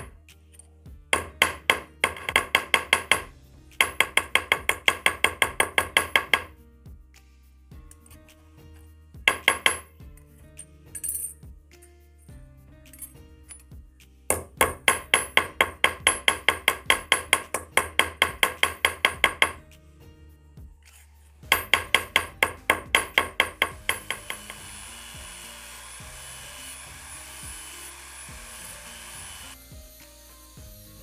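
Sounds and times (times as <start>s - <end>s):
small hammer tapping on steel: 1.2s - 6.5s, 9.3s - 9.9s, 14.3s - 19.6s, 21.5s - 24.6s
rotary tool brush wheel whining: 23.8s - 31.0s.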